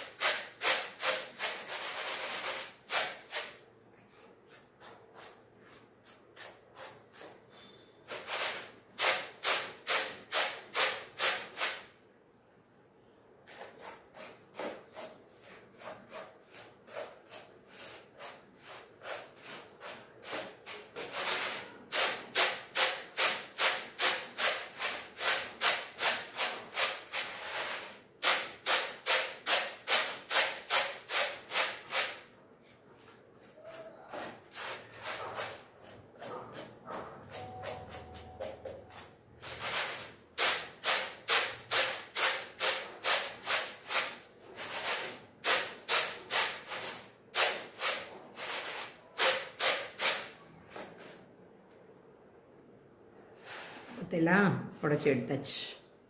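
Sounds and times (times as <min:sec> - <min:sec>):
grain swishing on winnowing tray: 0:53.4 - 0:54.0.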